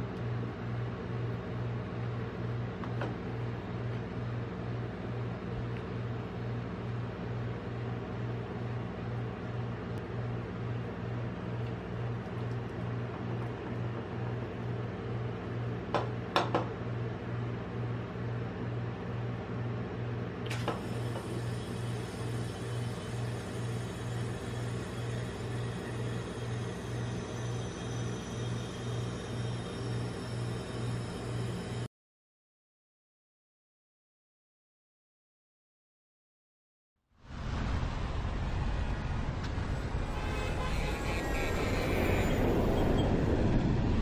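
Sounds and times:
pulsing low machine hum: 0.0 - 31.9
jet airliner flying past: 37.3 - 44.0.

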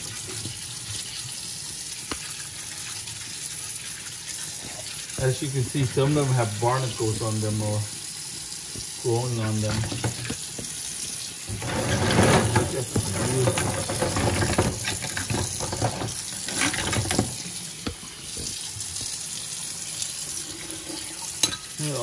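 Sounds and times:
tap running into a sink: 8.7 - 19.2.

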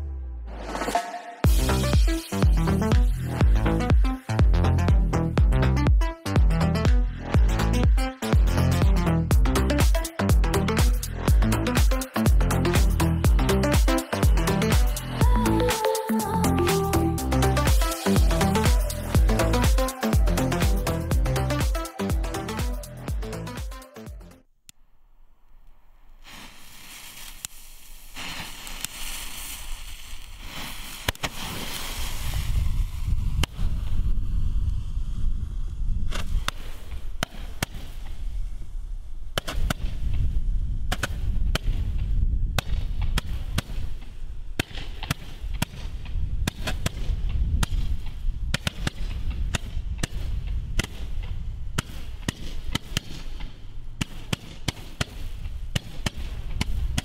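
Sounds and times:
steady low rumble: 1.4 - 24.3.

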